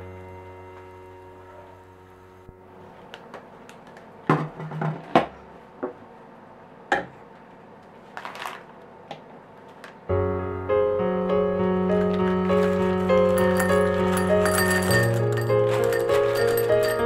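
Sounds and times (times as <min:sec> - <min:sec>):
background piano music: 0:10.1 - 0:17.0
glass bowl and scale knocking: 0:13.3 - 0:17.0.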